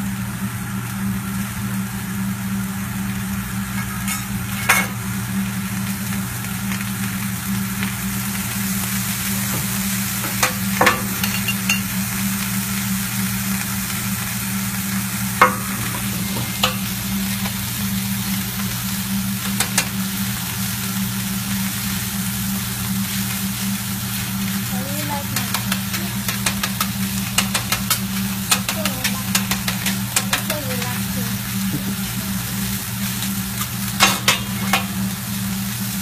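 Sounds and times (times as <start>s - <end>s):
rice sizzling on griddle: 0.0s - 36.0s
steady low hum: 0.0s - 36.0s
metal spatulas striking plate: 10.3s - 11.9s, 15.4s - 16.9s.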